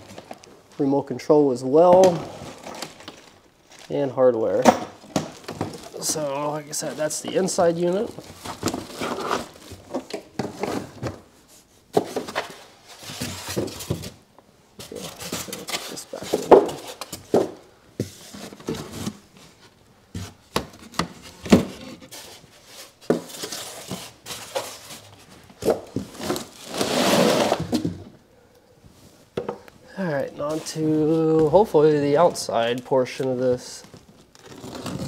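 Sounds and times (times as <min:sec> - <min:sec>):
plastic wrapping rustling: 0:00.0 - 0:00.8, 0:02.0 - 0:04.2, 0:05.0 - 0:11.4, 0:14.8 - 0:28.0, 0:30.0 - 0:35.0.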